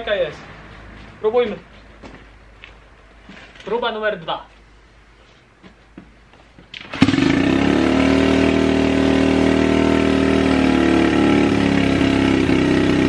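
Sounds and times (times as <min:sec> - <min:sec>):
motorbike engine idling: 0:06.9 - 0:13.0.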